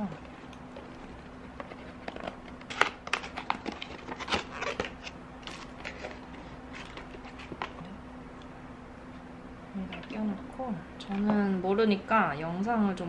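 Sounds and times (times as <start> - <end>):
paper rustling: 0.2 - 7.8.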